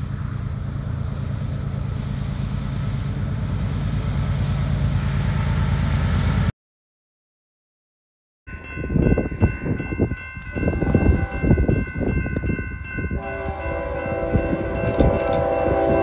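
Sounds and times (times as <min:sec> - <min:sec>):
passing train rumble: 0:00.0 - 0:06.5, 0:08.5 - 0:16.0
locomotive air horn chord: 0:10.7 - 0:11.6, 0:13.2 - 0:16.0.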